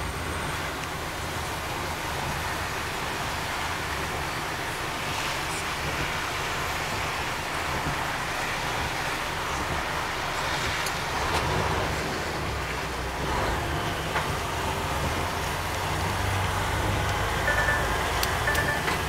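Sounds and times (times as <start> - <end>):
diesel engine drone: 0.0 - 19.0
tyre and road noise: 0.0 - 19.0.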